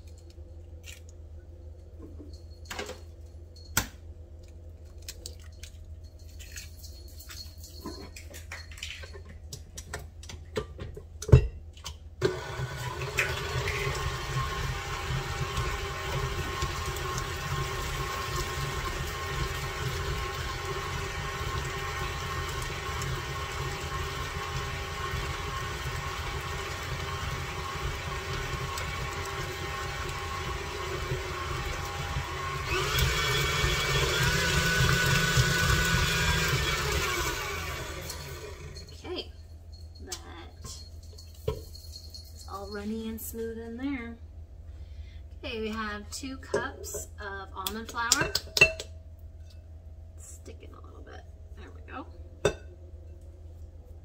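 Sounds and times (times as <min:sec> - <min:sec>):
electric stand mixer running: 0:12.2 - 0:38.9.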